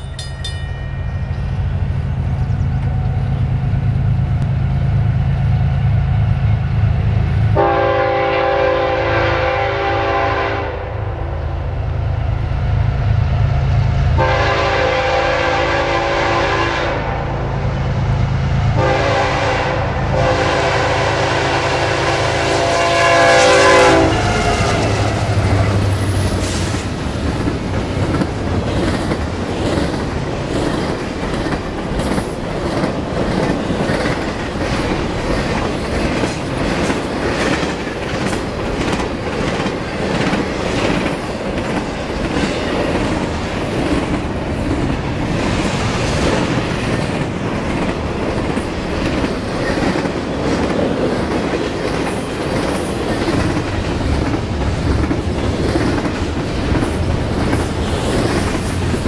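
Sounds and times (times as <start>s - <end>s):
diesel locomotive engine rumble: 0.0s - 59.0s
train air horn blasts: 7.6s - 11.2s, 14.2s - 17.5s, 18.8s - 25.8s
train wheels clattering on rails: 24.2s - 59.0s.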